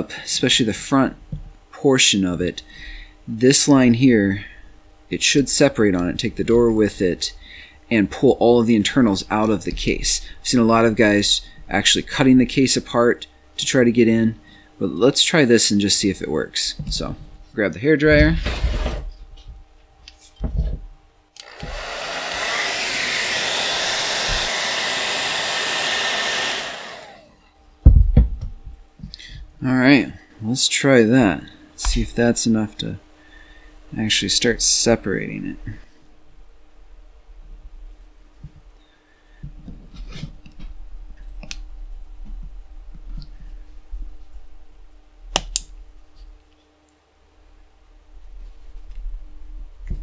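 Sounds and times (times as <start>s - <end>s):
hair dryer blowing: 21.4s - 27.4s.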